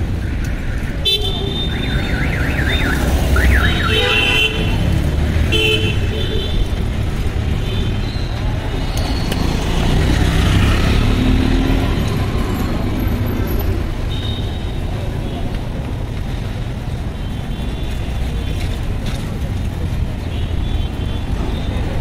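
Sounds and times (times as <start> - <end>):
traffic engine rumble: 0.0 - 22.0
vehicle horn toots: 3.5 - 4.8, 5.5 - 6.6.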